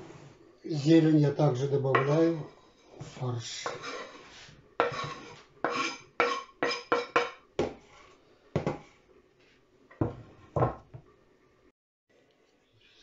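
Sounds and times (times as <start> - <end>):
knife scraping cutting board: 2.8 - 8.2.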